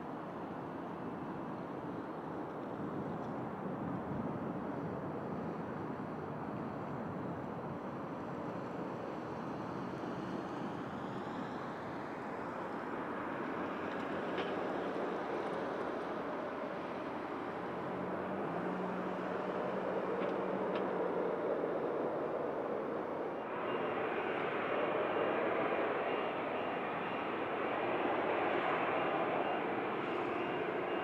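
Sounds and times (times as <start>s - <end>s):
jet engines idling: 11.0s - 31.0s.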